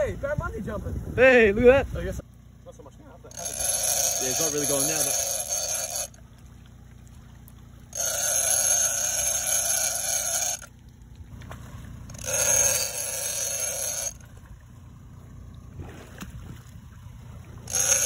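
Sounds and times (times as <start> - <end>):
low steady rumble: 0.0 - 18.0
fishing reel buzzing: 3.3 - 6.2, 7.9 - 10.8, 12.0 - 14.4, 17.6 - 18.0.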